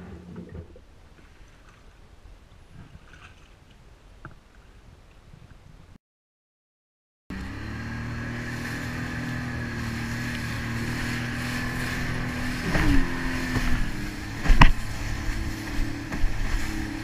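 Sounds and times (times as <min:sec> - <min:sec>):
jet ski engine drone: 0:07.3 - 0:17.0
rushing water and spray: 0:07.3 - 0:17.0
hull slapping water: 0:08.3 - 0:17.0.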